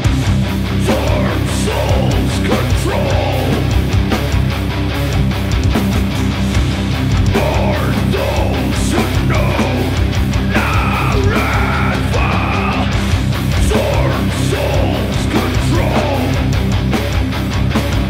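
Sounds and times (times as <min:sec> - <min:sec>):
harsh vocals: 0:00.0 - 0:04.4, 0:07.0 - 0:17.0
distorted electric guitars: 0:00.0 - 0:18.0
drums: 0:00.0 - 0:18.0.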